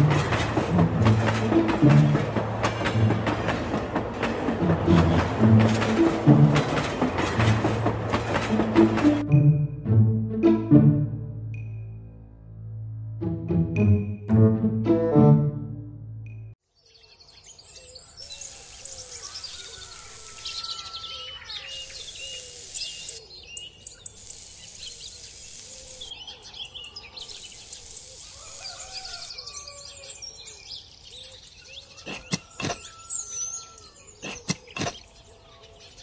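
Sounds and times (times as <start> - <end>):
birds chirping: 16.8 - 36.0
stick scratching through sand: 34.2 - 35.0.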